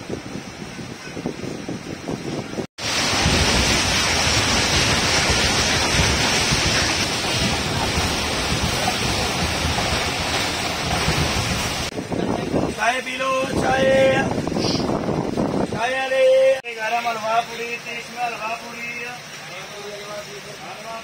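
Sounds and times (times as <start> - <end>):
train rushing at speed: 0.0 - 15.8.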